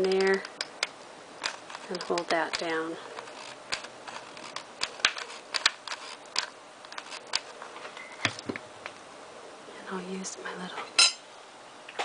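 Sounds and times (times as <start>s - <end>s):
hands handling craft materials: 0.0s - 8.6s.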